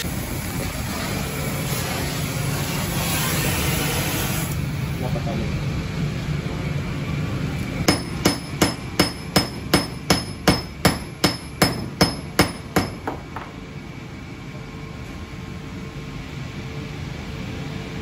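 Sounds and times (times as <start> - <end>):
hammer beating hot steel: 7.9 - 13.6.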